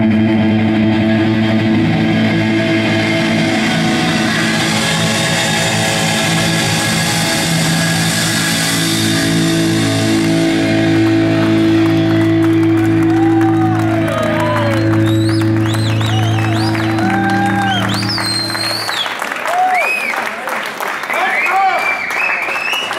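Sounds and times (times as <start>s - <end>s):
live rock band held chord: 0.0s - 19.1s
audience whistling and cheering: 10.2s - 22.9s.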